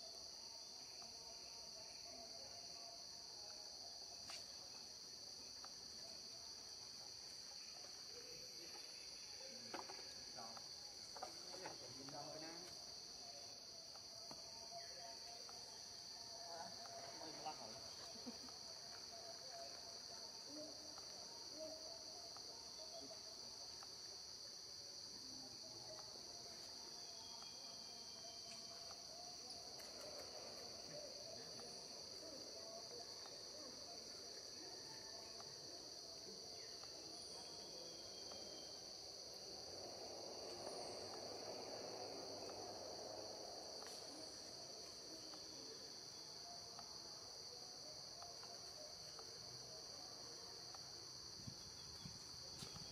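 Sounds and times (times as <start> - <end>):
insects buzzing chorus: 0.0 - 52.9.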